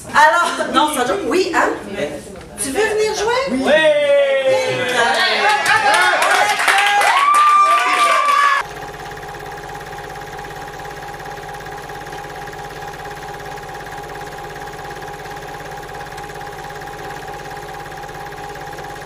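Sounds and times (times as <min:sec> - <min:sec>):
low fast-pulsing hum: 0:08.6 - 0:19.0.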